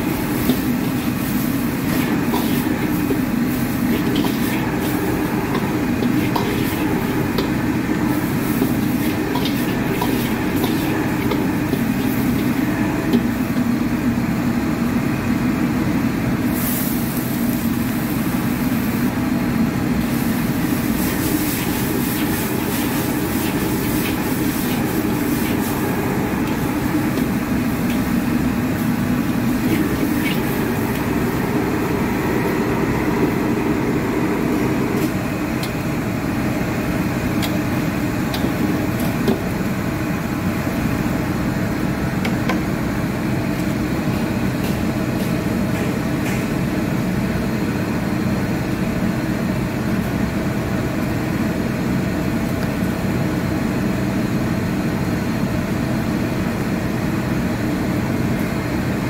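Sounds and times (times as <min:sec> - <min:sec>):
gas burner rushing: 0:00.0 - 0:14.1, 0:16.4 - 0:45.5.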